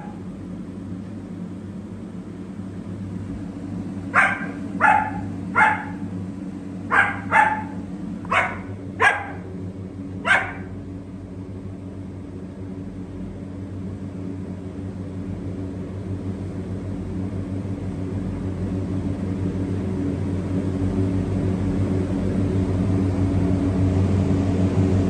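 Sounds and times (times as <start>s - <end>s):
low steady hum: 0.0s - 25.0s
dog barking: 4.1s - 6.1s, 6.9s - 9.5s, 10.2s - 10.7s.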